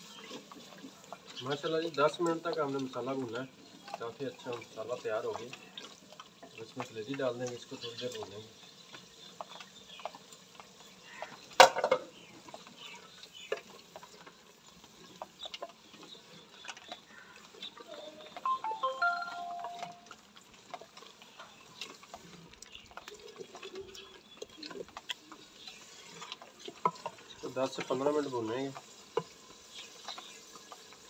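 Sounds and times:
liver frying and crackling: 0.0s - 31.0s
wooden spoon stirring: 0.0s - 31.0s
brief chirping call: 18.4s - 20.0s.

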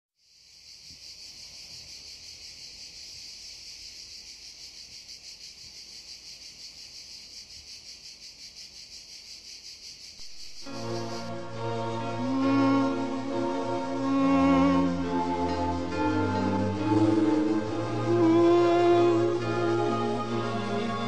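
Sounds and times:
cicadas buzzing: 0.2s - 21.0s
music: 10.2s - 21.0s.

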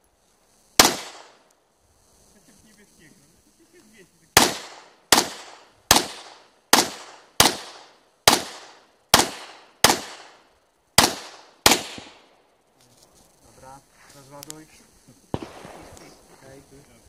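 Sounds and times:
pistol shots: 0.8s - 1.4s, 4.4s - 10.4s, 11.0s - 12.3s, 15.3s - 16.1s.

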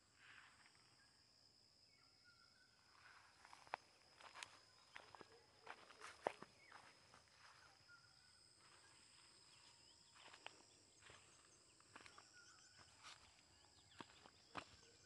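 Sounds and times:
footsteps crunching on dry soil: 3.1s - 15.0s.

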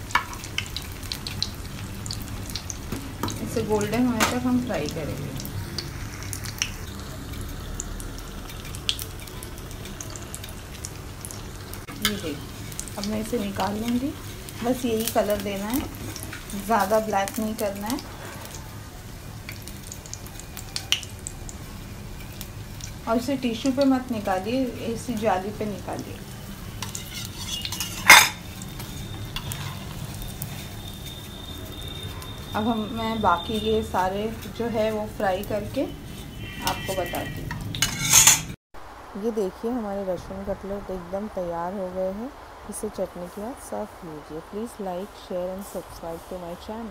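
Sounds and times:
oil popping and crackling: 0.0s - 38.6s
meat deep-frying in hot oil: 0.0s - 46.9s
metal spatula clanking on strainer: 37.8s - 38.6s.

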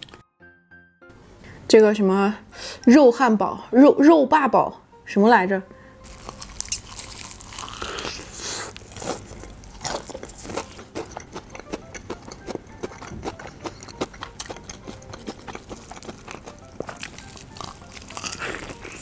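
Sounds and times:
crunchy biting and chewing: 6.0s - 19.0s
wet mouth clicks: 6.6s - 6.9s.

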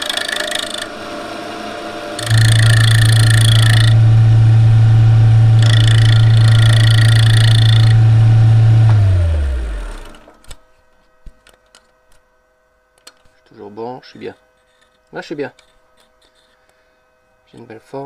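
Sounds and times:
gouge cutting wood: 0.0s - 4.2s, 5.4s - 9.0s
wood lathe running: 0.0s - 10.4s.

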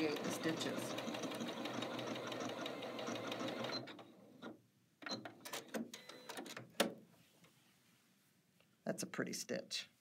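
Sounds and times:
sewing machine stitching: 0.0s - 4.5s.

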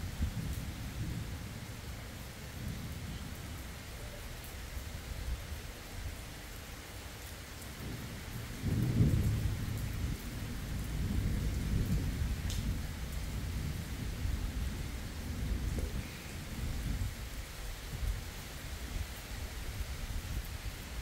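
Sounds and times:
rain hissing: 0.0s - 21.0s
thunder rumbling: 7.8s - 17.2s.

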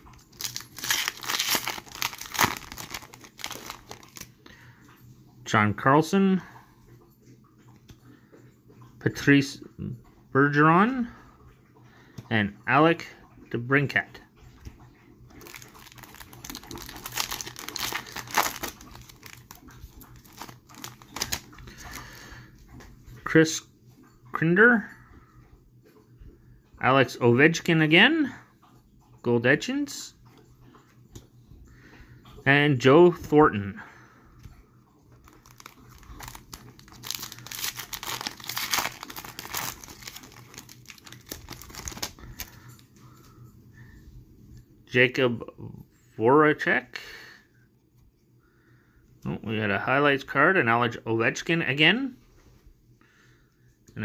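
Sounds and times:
foil wrapper tearing and crinkling: 0.0s - 4.3s, 15.4s - 22.0s, 35.2s - 42.6s.

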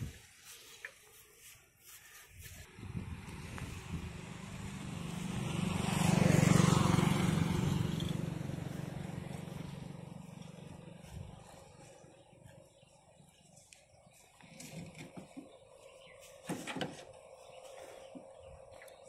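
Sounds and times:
vehicle engine passing by: 2.7s - 13.2s.

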